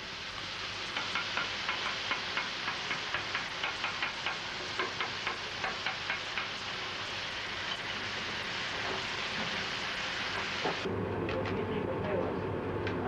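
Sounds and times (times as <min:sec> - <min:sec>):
meat sizzling on griddle: 0:00.0 - 0:10.9
metal spatula tapping: 0:00.9 - 0:06.6.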